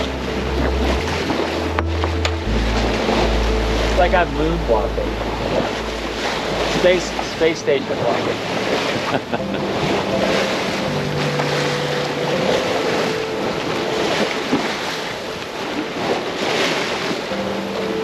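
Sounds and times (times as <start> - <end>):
low steady hum: 0.0 - 8.6
rushing sea water: 0.0 - 18.0
wind: 0.0 - 18.0.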